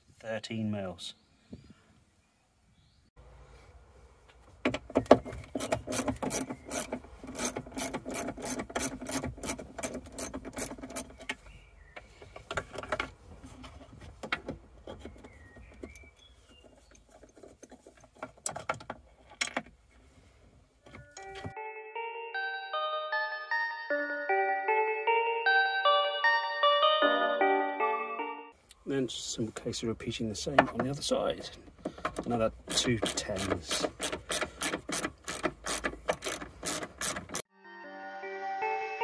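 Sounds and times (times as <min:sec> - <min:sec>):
socket ratchet clicking: 0:05.6 - 0:11.2, 0:32.1 - 0:37.4.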